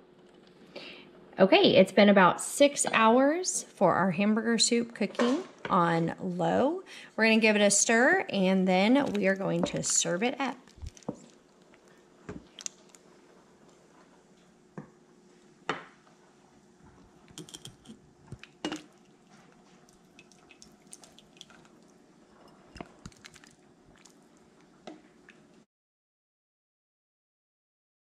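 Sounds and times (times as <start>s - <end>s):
soup sloshing and dripping: 10.6s - 13.0s, 17.3s - 25.6s.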